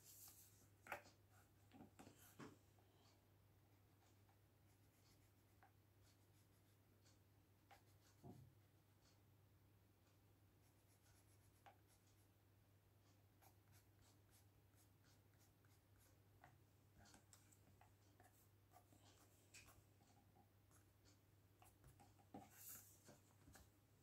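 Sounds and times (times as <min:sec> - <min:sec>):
pencil scratching on paper: 0:03.8 - 0:09.2, 0:10.6 - 0:12.3, 0:13.0 - 0:23.6.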